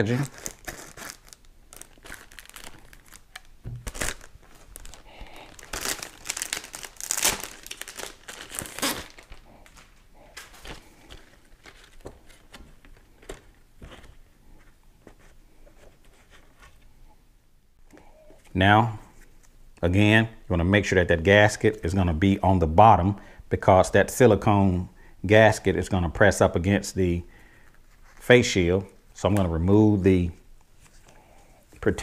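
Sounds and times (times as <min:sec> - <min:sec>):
packaging crinkling: 0:00.0 - 0:14.2.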